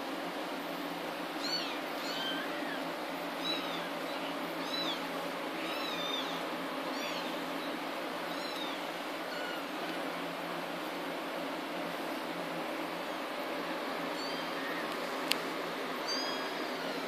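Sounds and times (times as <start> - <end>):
background hiss: 0.0 - 17.0
kittens mewing: 1.4 - 7.4, 8.3 - 9.8.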